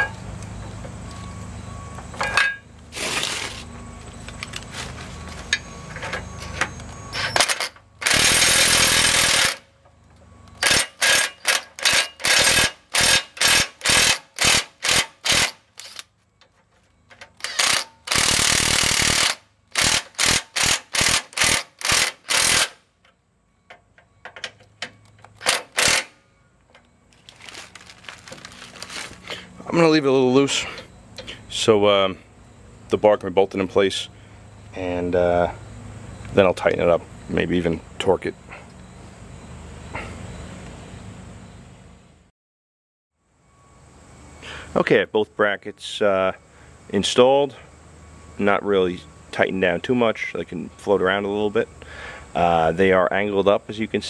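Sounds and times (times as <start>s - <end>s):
impact driver hammering: 10.6s - 16.0s, 17.4s - 22.8s.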